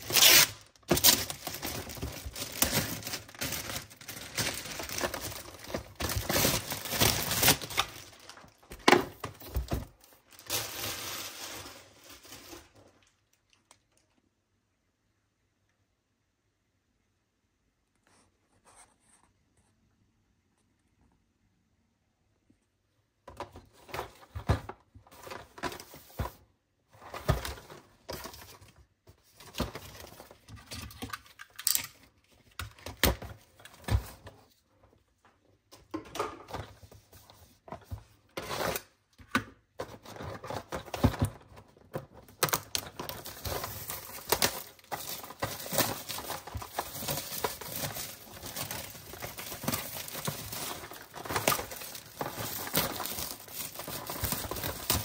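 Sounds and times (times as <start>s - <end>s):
plastic film crinkling and tearing: 0.0s - 13.6s, 30.7s - 32.1s, 40.0s - 55.0s.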